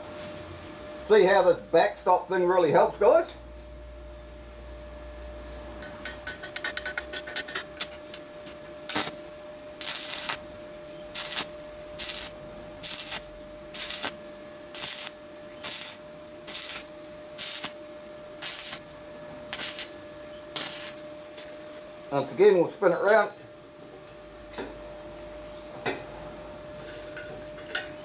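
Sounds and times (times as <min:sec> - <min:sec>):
thin whine: 0:00.0 - 0:28.0
welding arc crackling: 0:06.2 - 0:21.6.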